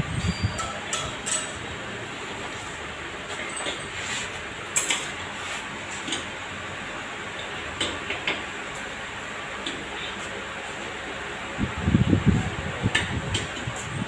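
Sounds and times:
steady background noise: 0:00.0 - 0:14.0
metal clicks and clinks: 0:00.3 - 0:01.6.

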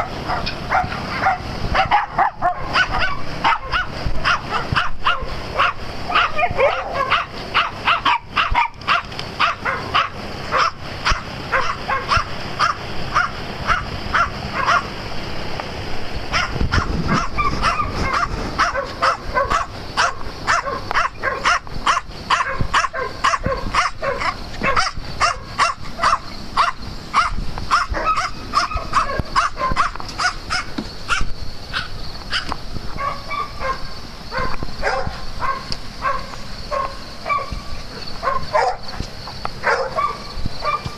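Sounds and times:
small dogs barking: 0:00.0 - 0:15.0, 0:16.3 - 0:40.9.

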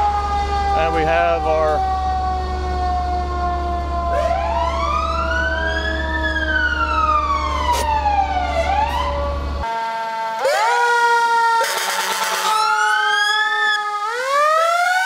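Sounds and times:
truck engine droning: 0:00.0 - 0:10.9
fire truck siren wailing: 0:00.0 - 0:15.0
steady siren tone sliding lower: 0:00.0 - 0:15.0.

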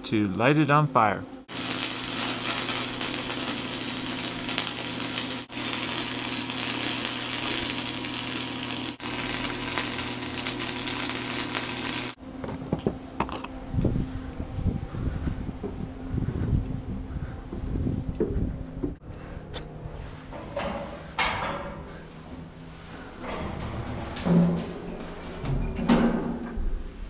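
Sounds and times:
low hum: 0:01.2 - 0:27.0
welding arc crackling: 0:01.5 - 0:12.2.

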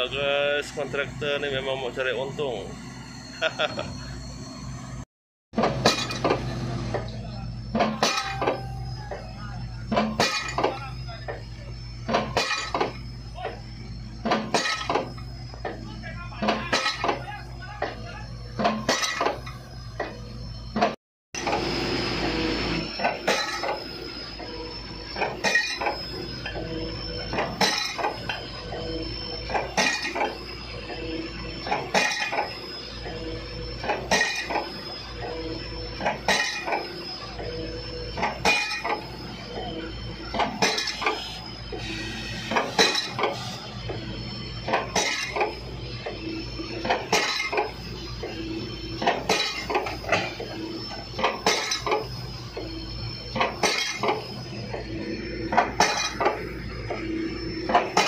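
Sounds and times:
excavator engine running: 0:00.0 - 0:58.0
hammer striking steel: 0:05.6 - 0:11.5, 0:49.0 - 0:52.8, 0:53.4 - 0:58.0.

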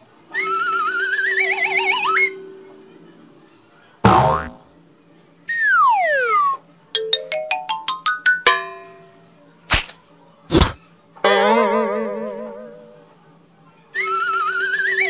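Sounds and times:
falling whistle: 0:00.3 - 0:02.4, 0:05.5 - 0:06.6, 0:14.0 - 0:15.0.

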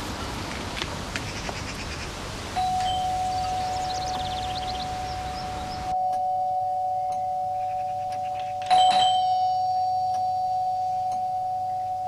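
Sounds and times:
bright bell-like ping: 0:02.6 - 0:03.9, 0:06.0 - 0:12.0
steady two-note tone: 0:02.6 - 0:12.0.

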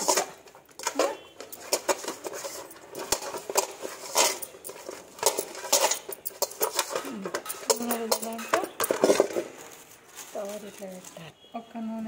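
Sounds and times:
hand scraping metal basin: 0:00.0 - 0:09.6.

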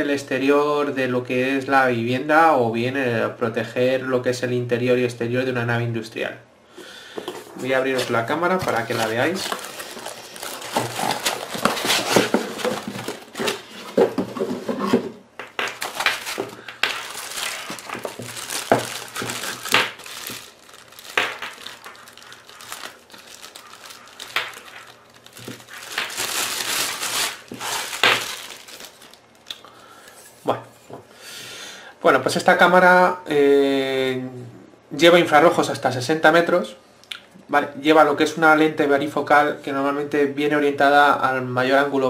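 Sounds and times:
packaging crinkling and rustling: 0:07.2 - 0:29.5.

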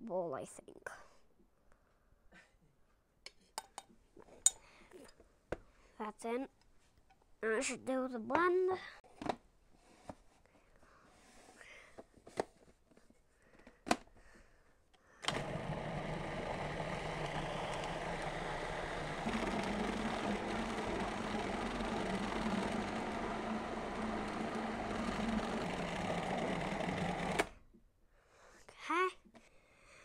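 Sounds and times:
food processor motor running: 0:15.2 - 0:27.6.

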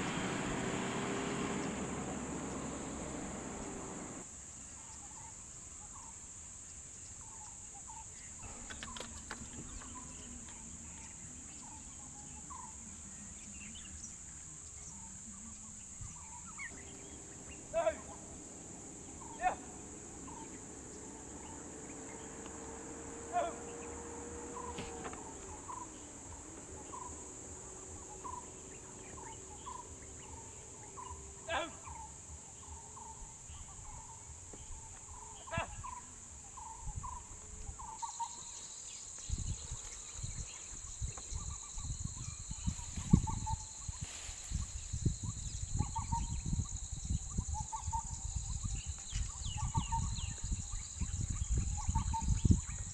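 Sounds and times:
low rumbling wind: 0:00.0 - 0:04.2, 0:15.7 - 0:52.9
high insect drone: 0:00.0 - 0:04.3, 0:08.4 - 0:52.9
faint low hum: 0:08.2 - 0:52.9
short bird calls: 0:16.2 - 0:22.6.

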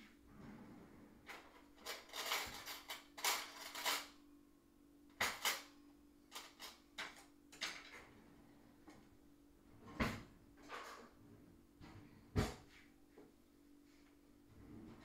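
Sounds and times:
faint steady hum: 0:00.0 - 0:15.0
cutlery clattering in drawer: 0:01.3 - 0:04.1.

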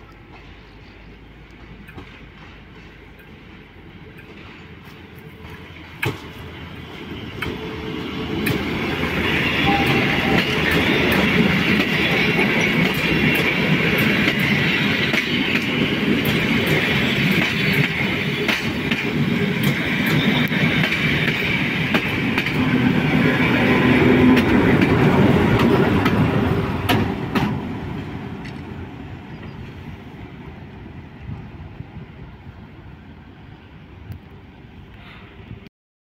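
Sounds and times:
wheels clicking over rail joints: 0:00.0 - 0:06.4
diesel train engines running: 0:00.0 - 0:35.6.

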